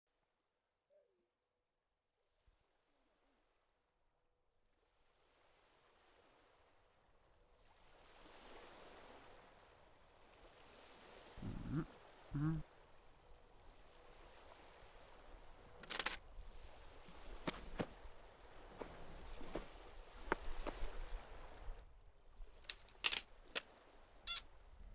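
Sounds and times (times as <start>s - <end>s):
sea ambience: 2.2s - 24.9s
voice murmurs: 11.4s - 12.6s
metallic tripod clack: 15.8s - 16.2s, 22.7s - 23.7s.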